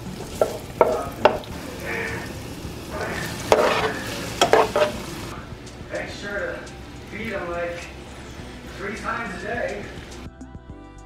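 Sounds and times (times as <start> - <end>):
oil sizzling in frying pan: 0.0 - 10.3
tongs clicking against pan: 0.3 - 2.3, 3.0 - 5.1.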